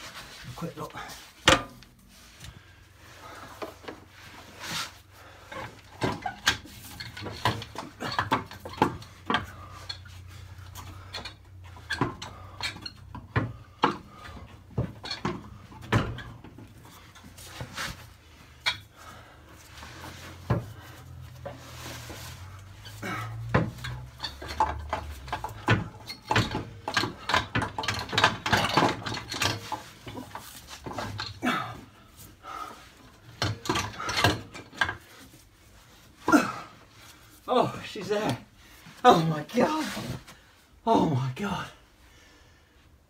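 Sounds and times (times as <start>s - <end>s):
gearbox metallic clunks and scrapes: 4.8s - 19.0s, 19.6s - 36.1s.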